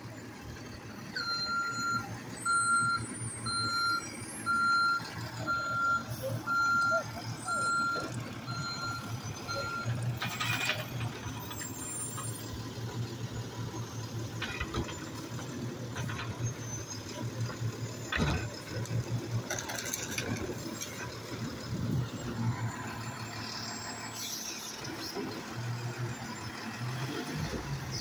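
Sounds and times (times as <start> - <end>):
garbage truck running: 0.0 - 28.0
reversing beeper: 1.2 - 10.7
clanks: 9.9 - 12.6, 14.2 - 21.6.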